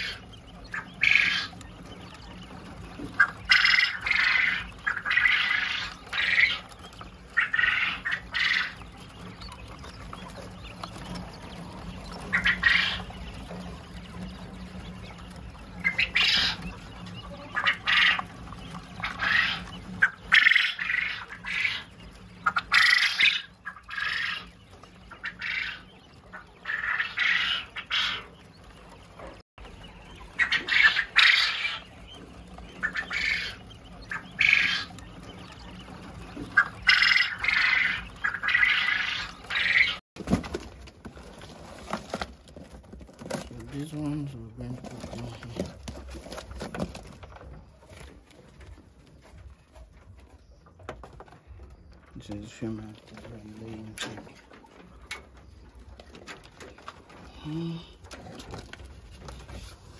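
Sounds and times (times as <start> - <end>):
quail calling: 0.0 - 40.0.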